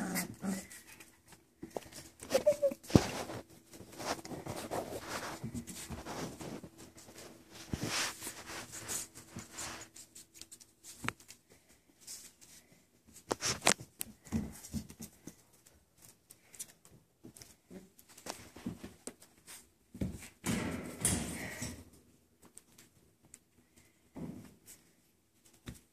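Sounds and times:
puppies rustling and scratching: 0.0s - 25.9s.

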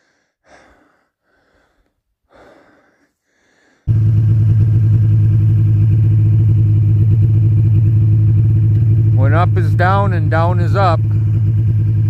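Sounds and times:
faint breaths: 0.0s - 3.9s
snowmobile engine running: 3.9s - 12.0s.

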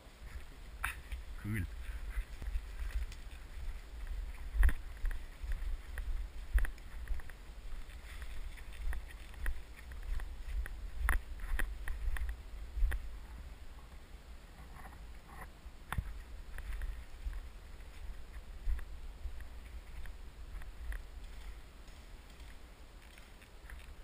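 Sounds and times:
footsteps through dry leaves: 0.0s - 13.3s
wind rumble on microphone: 0.0s - 24.0s.

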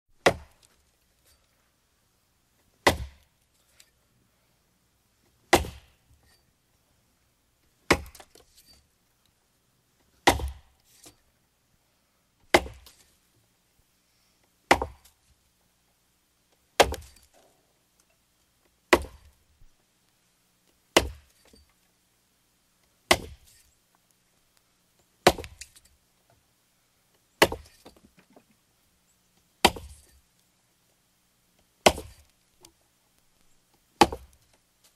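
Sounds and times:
axe chopping wood: 0.2s - 0.7s, 2.8s - 3.2s, 5.5s - 6.0s, 7.9s - 8.4s, 10.2s - 10.8s, 12.5s - 13.0s, 14.7s - 15.2s, 16.8s - 17.2s, 18.9s - 19.3s, 21.0s - 21.4s, 23.1s - 23.5s, 25.2s - 25.8s, 27.4s - 28.0s, 29.6s - 30.1s, 31.8s - 32.3s, 34.0s - 34.4s.

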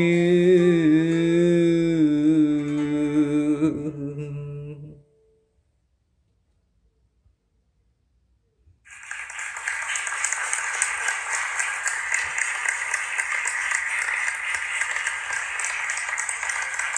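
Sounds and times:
crowd applauding: 8.9s - 16.9s.

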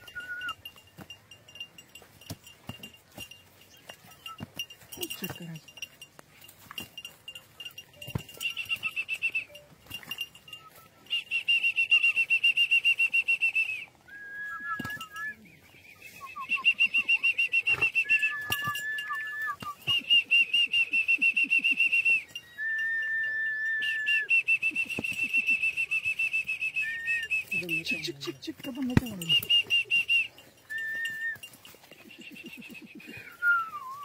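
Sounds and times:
low steady whistled notes: 0.0s - 0.7s, 10.5s - 28.0s, 29.1s - 34.0s
warbling whistled trills: 0.0s - 0.8s.

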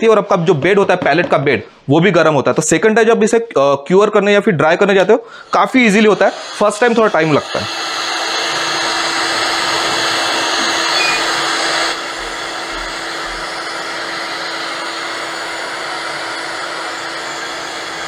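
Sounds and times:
heat gun blowing: 5.3s - 18.0s.

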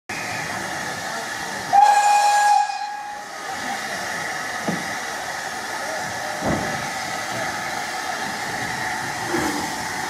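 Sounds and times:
steam hissing: 0.1s - 10.0s
steam whistle blast: 1.7s - 3.3s.

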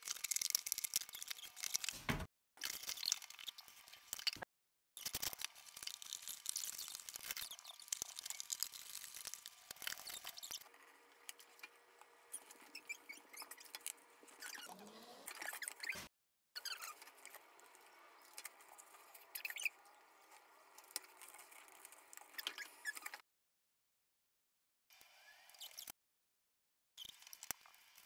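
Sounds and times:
short squeaks: 14.4s - 17.0s.

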